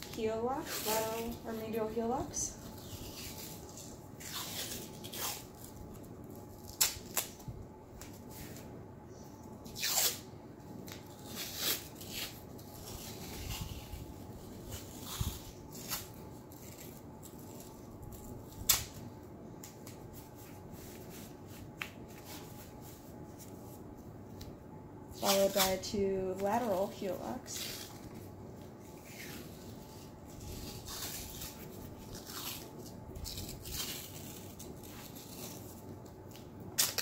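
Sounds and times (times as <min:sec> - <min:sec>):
hands rubbing tape strips: 0:00.0 - 0:08.7, 0:10.8 - 0:37.0
tape pulled and torn: 0:02.7 - 0:08.6, 0:09.6 - 0:19.0, 0:27.6 - 0:28.2, 0:29.0 - 0:37.0
sharp tape snaps: 0:06.6 - 0:08.2, 0:18.1 - 0:19.0, 0:36.3 - 0:37.0.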